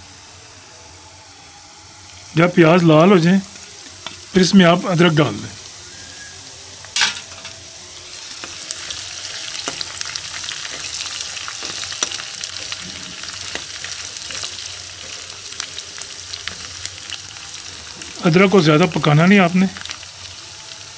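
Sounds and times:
onions sizzling in pan: 0:00.0 - 0:20.9.

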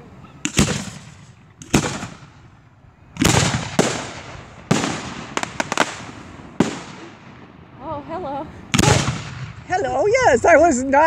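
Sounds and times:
firework bangs with echo: 0:00.4 - 0:07.8, 0:08.7 - 0:09.7
firework crackling: 0:00.4 - 0:11.0.

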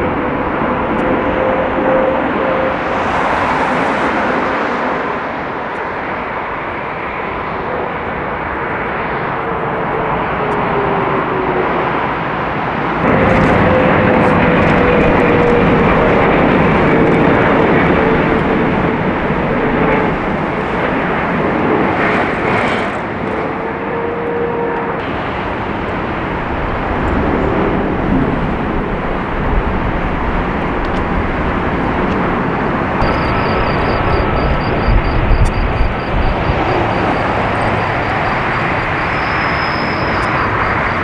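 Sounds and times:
jet engines rumbling and whining: 0:00.0 - 0:41.0.

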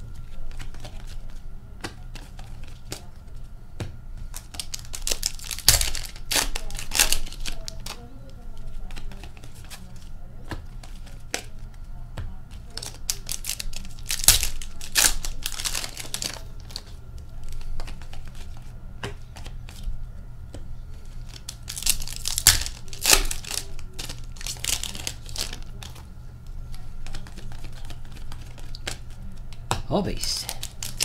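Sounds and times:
cards rustling: 0:00.1 - 0:03.2, 0:04.3 - 0:11.7, 0:12.6 - 0:19.9, 0:20.9 - 0:29.5, 0:30.1 - 0:31.0
foil wrappers tearing and crinkling: 0:04.3 - 0:09.9, 0:12.7 - 0:18.5, 0:21.2 - 0:26.0, 0:26.7 - 0:29.1, 0:30.2 - 0:31.0.

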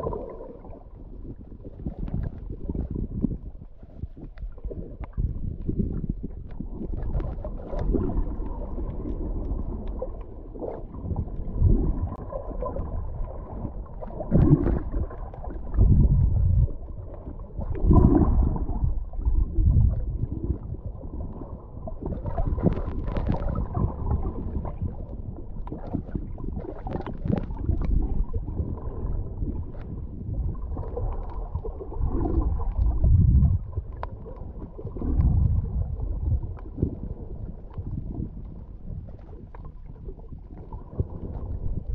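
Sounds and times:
muffled underwater gurgling: 0:00.0 - 0:41.9.

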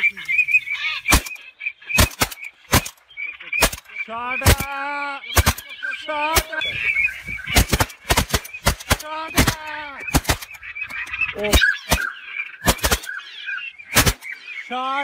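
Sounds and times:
waterfowl honking: 0:00.0 - 0:15.0
shotgun blasts: 0:01.1 - 0:03.0, 0:03.6 - 0:04.8, 0:05.4 - 0:05.7, 0:07.5 - 0:10.6, 0:11.5 - 0:13.2, 0:13.9 - 0:14.3.

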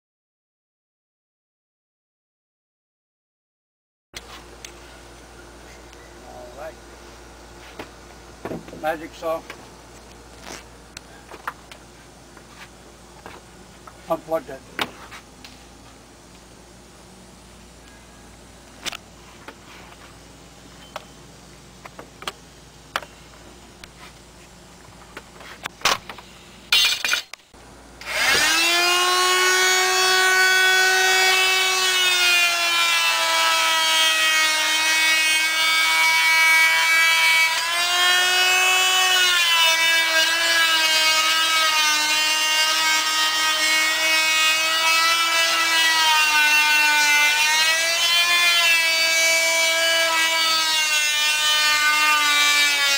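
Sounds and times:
power saw cutting wood: 0:28.0 - 0:52.9.

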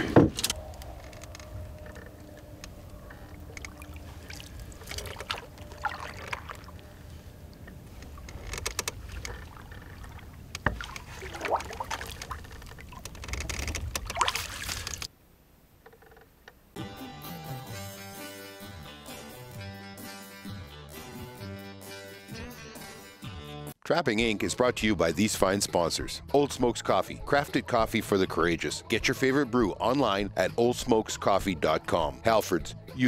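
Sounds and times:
water lapping at hull: 0:01.6 - 0:15.1
splashes and knocks: 0:03.6 - 0:06.8, 0:08.1 - 0:15.1.

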